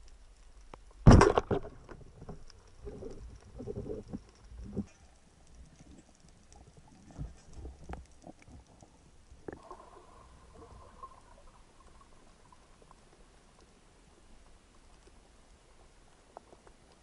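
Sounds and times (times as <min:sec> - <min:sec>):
faint steady hum: 0:00.0 - 0:17.0
dull knocks underwater: 0:01.0 - 0:04.8.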